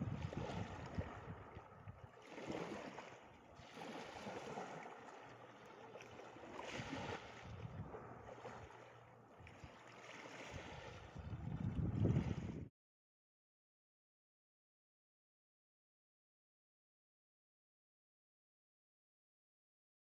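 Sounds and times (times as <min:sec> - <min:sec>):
wind on microphone: 0:00.0 - 0:02.8, 0:06.7 - 0:08.6, 0:10.4 - 0:12.7
small waves washing on shore: 0:00.0 - 0:12.7.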